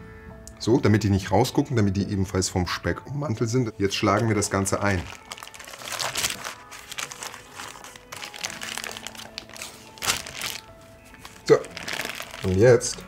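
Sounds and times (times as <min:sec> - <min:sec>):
baking paper crinkling: 0:03.8 - 0:13.0.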